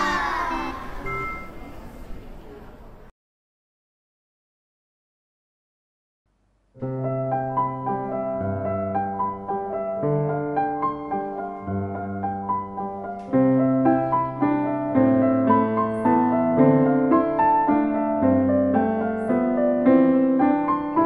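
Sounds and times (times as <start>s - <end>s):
digital piano duet: 0.0s - 1.9s, 6.8s - 21.0s.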